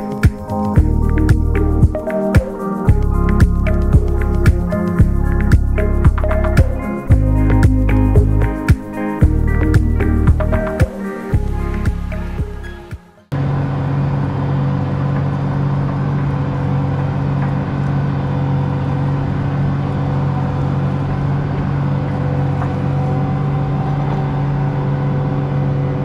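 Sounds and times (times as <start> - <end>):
tractor diesel engine under load: 13.4 - 26.0.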